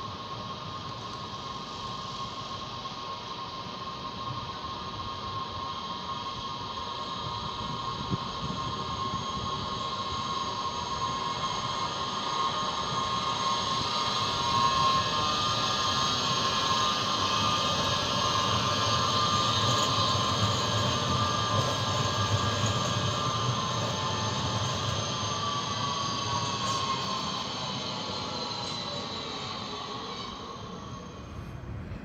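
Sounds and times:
high electric whine: 0:00.0 - 0:31.5
tram wheels rumbling on rails: 0:17.8 - 0:32.0.

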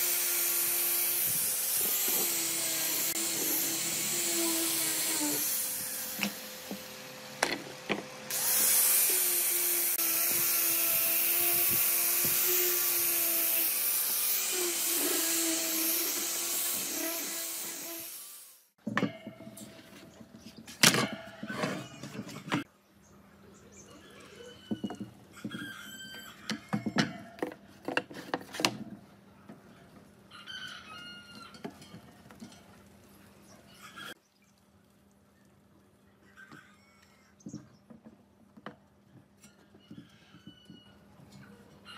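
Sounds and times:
angle grinder motor whine: 0:00.0 - 0:18.4
disc sanding wood: 0:00.0 - 0:18.6
rooster crowing: 0:30.3 - 0:31.6.

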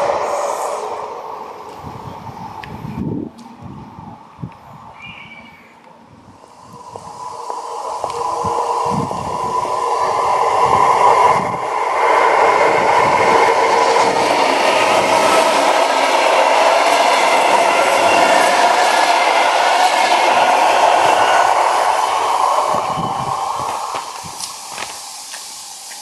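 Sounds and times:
electric train whine: 0:00.0 - 0:26.0
train wheels on rails: 0:00.0 - 0:26.0.

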